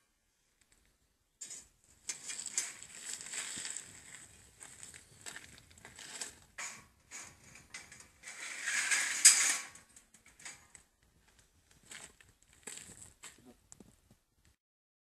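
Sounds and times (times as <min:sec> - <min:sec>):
wire mesh scraping and clanking: 0:01.4 - 0:10.8.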